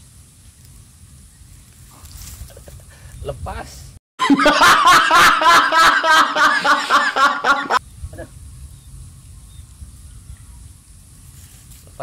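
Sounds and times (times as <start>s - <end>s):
man laughing loudly: 4.2s - 7.8s.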